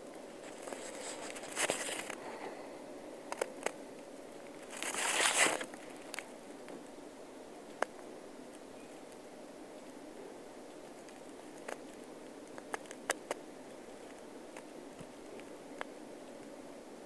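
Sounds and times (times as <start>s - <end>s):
rustling and crinkling: 0.0s - 2.6s, 3.2s - 7.0s.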